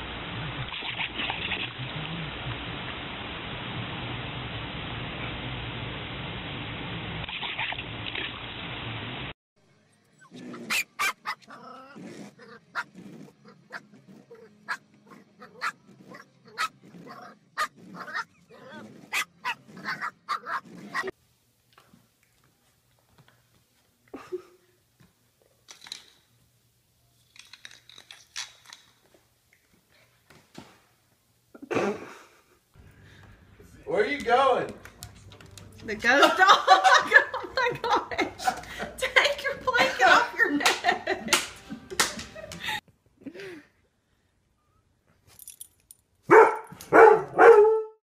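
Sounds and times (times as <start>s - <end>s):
dog barking: 10.7s - 11.5s, 14.7s - 16.8s, 19.1s - 21.1s, 46.3s - 48.0s
scrapes and clicks on tiled floor: 25.0s - 26.3s, 27.1s - 30.8s
faint metallic jingle: 45.3s - 46.9s.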